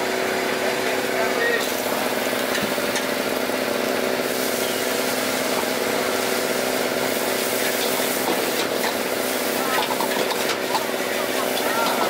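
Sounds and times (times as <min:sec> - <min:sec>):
rice frying hum and hiss: 0:00.0 - 0:12.0.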